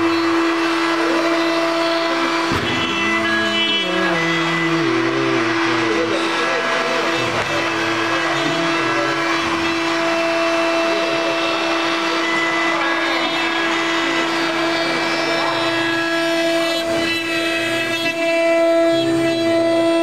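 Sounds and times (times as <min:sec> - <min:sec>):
cnc router whining: 0:00.0 - 0:20.0.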